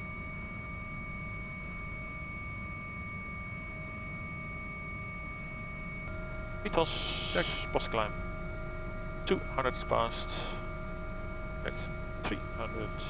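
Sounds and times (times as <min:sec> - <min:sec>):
helicopter rotor and engine rumble: 0:00.0 - 0:13.0
high whining tones: 0:06.0 - 0:13.0.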